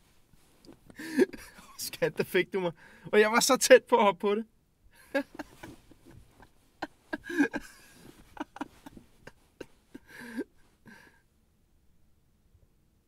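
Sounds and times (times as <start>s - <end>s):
man chuckling quietly: 5.0s - 11.0s.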